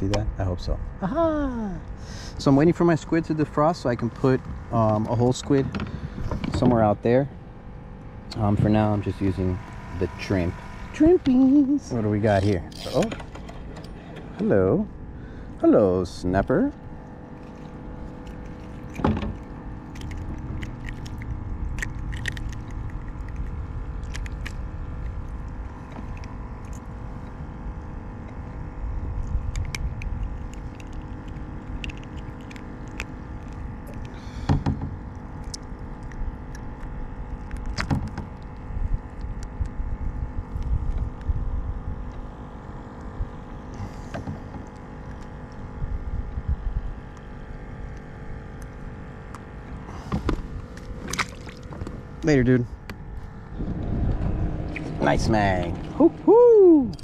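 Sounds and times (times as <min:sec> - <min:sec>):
faint steady hum: 0:00.0 - 0:57.0
wind rumble on microphone: 0:01.7 - 0:14.0, 0:16.0 - 0:57.0.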